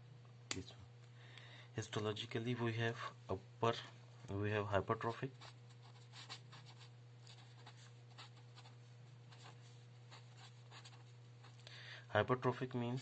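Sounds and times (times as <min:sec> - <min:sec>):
marker pen scratching on paper: 0:05.3 - 0:11.6.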